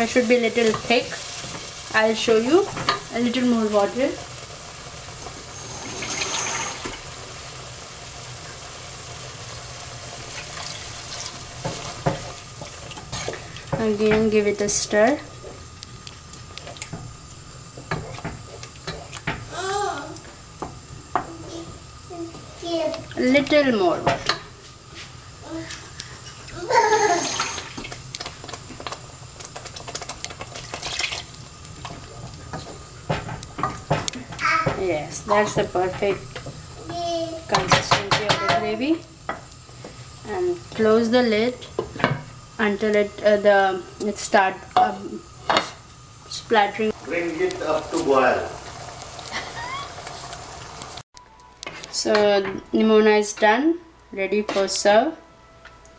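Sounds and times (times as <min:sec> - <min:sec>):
wooden spoon stirring in a pot: 0:00.0 - 0:07.1, 0:09.5 - 0:19.6, 0:20.2 - 0:41.0
water pouring and splashing: 0:05.2 - 0:07.3, 0:09.9 - 0:13.8, 0:26.4 - 0:32.2.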